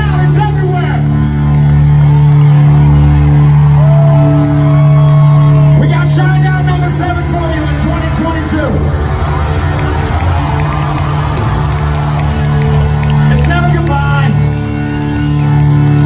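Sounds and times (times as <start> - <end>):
crowd shouting: 8.7 - 13.6.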